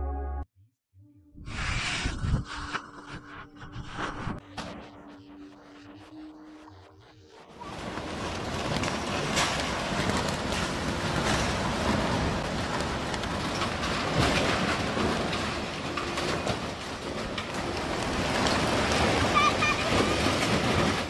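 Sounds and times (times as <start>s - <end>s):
storm wind on microphone: 1.4s - 5.2s
sheeting flapping: 7.6s - 21.0s.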